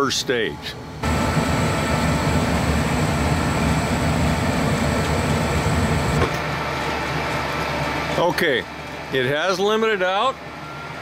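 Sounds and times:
furnace burners roaring: 0.0s - 11.0s
inducer fan humming: 0.0s - 11.0s
burner cutting out with click: 1.0s - 6.6s.

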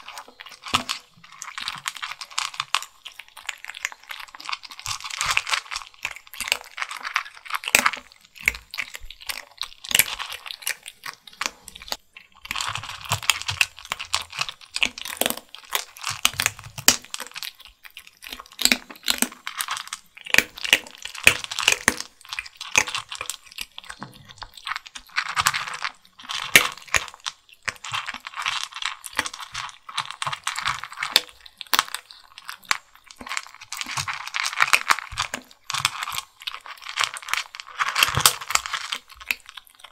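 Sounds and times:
kittens crunching dry kibble: 0.0s - 39.9s.

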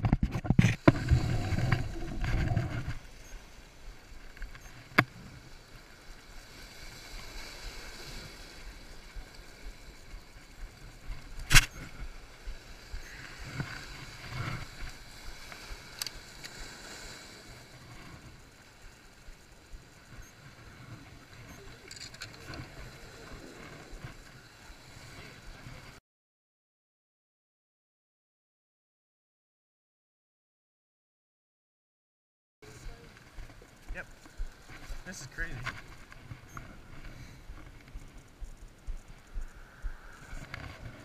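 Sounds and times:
waves washing against rocks: 0.7s - 4.0s.

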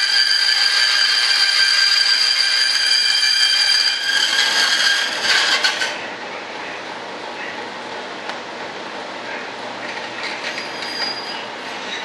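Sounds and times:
bandsaw whining and cutting: 0.0s - 6.0s.

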